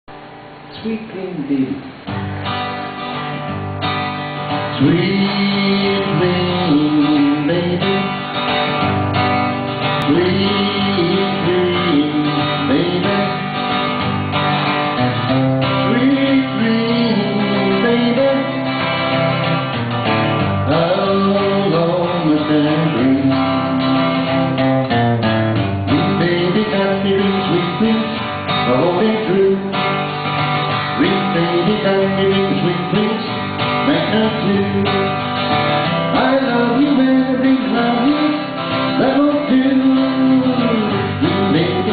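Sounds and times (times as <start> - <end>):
acoustic guitar strumming: 0.1 - 41.9.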